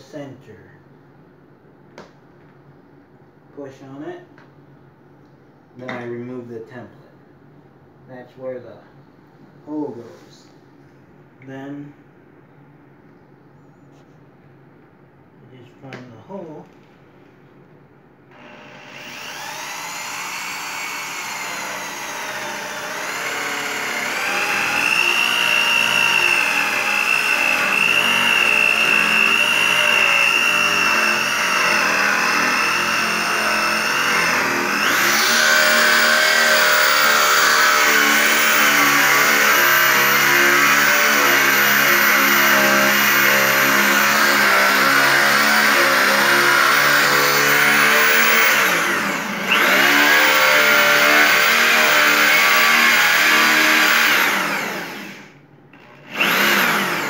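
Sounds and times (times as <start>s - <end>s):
electric drill boring wood: 18.3s - 57.0s.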